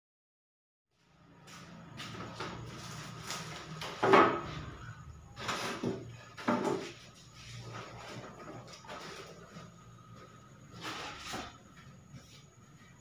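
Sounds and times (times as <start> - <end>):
boards scraping and clattering: 2.2 - 4.8, 5.4 - 9.8, 10.7 - 11.8.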